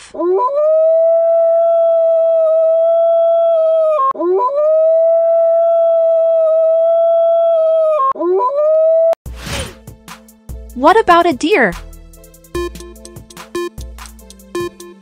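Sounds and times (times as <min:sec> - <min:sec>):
wolf howling: 0:00.3 - 0:08.1.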